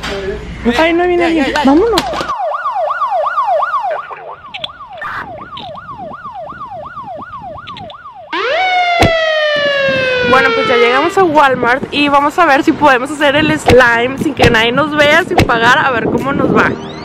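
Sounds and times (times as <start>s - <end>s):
siren yelping: 1.9s - 11.8s, 16.7s - 17.0s.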